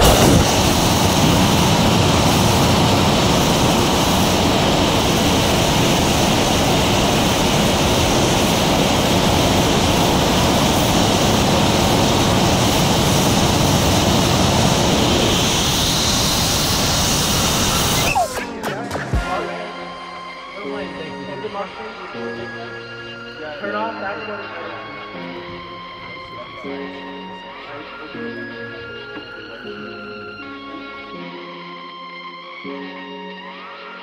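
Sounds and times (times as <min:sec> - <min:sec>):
rocket engine roaring: 0:00.0 - 0:19.2.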